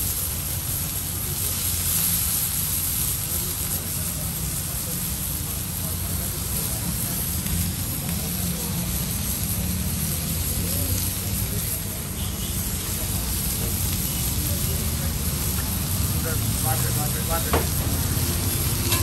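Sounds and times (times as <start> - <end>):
onions sizzling on a griddle: 0.0 - 19.0.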